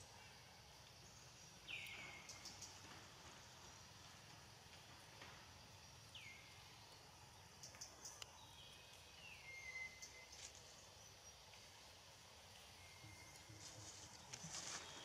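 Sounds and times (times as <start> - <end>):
low hiss: 0.0 - 15.0
high whistled bird calls: 8.4 - 10.4.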